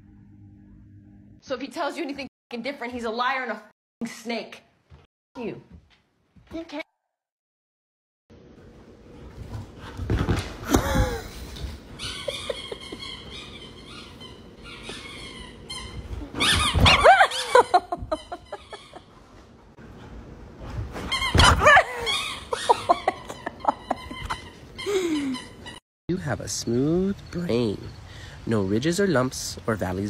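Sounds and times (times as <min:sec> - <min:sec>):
dog whining: 0:11.9 - 0:19.0, 0:21.1 - 0:25.8.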